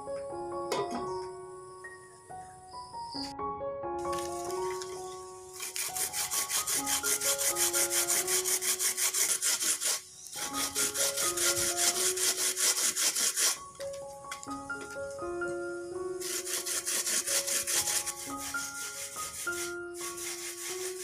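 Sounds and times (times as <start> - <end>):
soft background music: 0.0 - 21.0
coconut grating rasping scrape: 5.6 - 13.6, 16.2 - 21.0.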